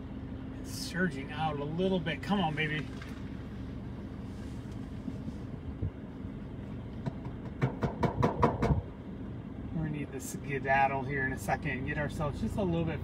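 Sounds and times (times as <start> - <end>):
steady low rumble: 0.0 - 13.0
sharp clicks and knocks: 6.9 - 8.8.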